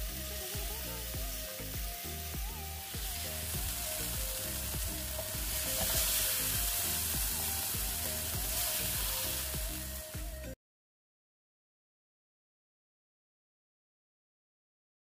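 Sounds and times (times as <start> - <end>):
background music: 0.0 - 10.6
food sizzling in oil: 0.0 - 10.6.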